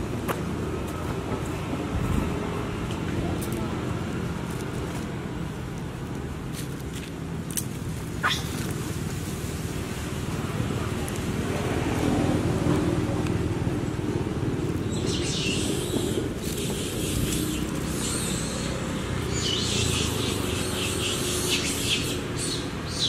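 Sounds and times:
birds chirping: 0:14.5 - 0:23.0.

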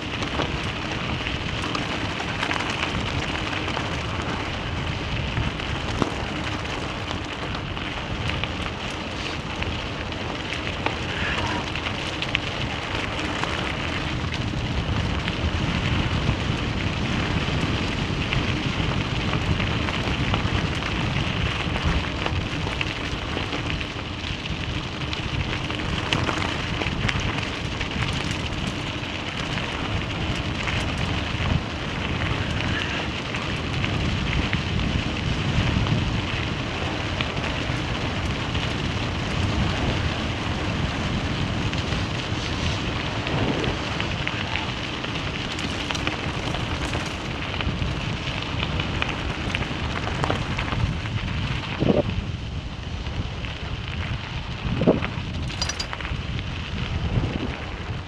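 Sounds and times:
vehicle low rumble: 0:00.0 - 0:58.0.

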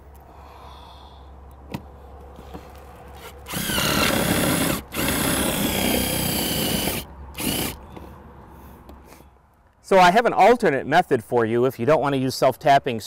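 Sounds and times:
power drill driving screw: 0:03.2 - 0:07.8.

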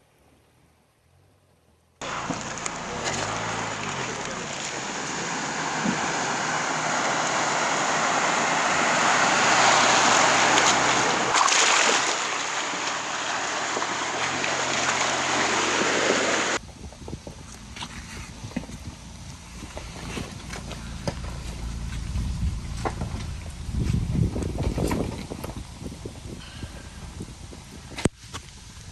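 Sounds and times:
engine running low: 0:00.2 - 0:28.9
water rushing and splashing: 0:02.0 - 0:16.6.

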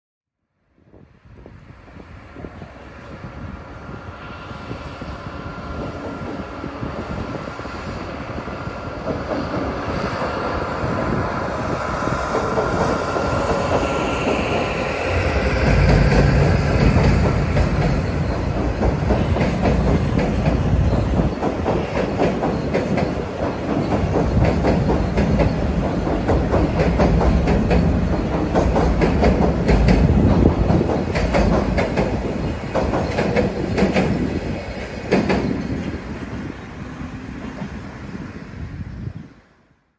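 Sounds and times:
train rumbling: 0:00.8 - 0:39.9
train wheels clacking: 0:08.8 - 0:36.5.

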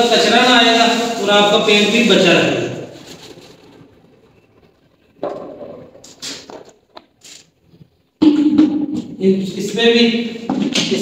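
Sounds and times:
plastic buckets and lids knocking: 0:05.2 - 0:07.1, 0:08.2 - 0:09.2.

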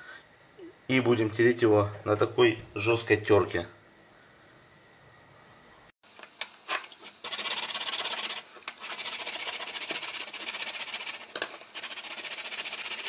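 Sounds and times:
vegetable rasping on a grater: 0:07.0 - 0:13.0.

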